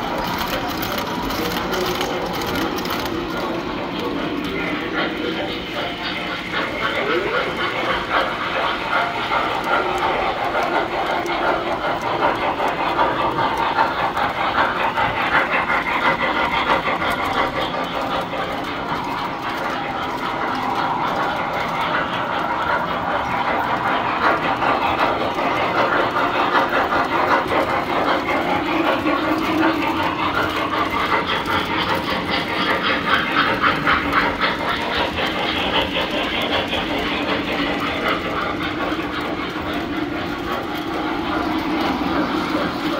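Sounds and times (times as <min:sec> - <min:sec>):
toy trains rattling on metal track: 0:00.0 - 0:42.9.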